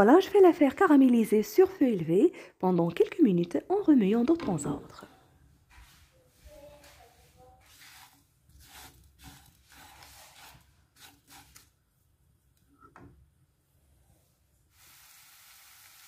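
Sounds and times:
spatula scraping frying pan: 5.8s - 11.6s.

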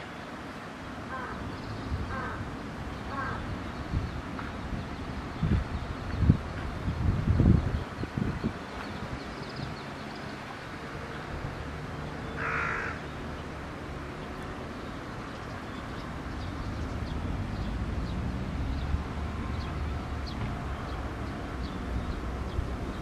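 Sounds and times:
outdoor background noise: 0.0s - 23.0s
crow cawing: 2.1s - 2.4s, 3.1s - 3.4s, 12.4s - 13.0s.

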